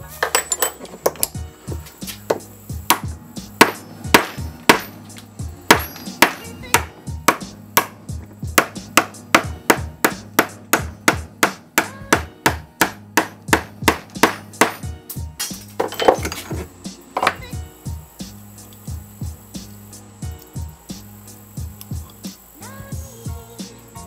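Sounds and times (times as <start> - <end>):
hammer tapping steel rod: 2.3 - 8.0, 8.6 - 14.8.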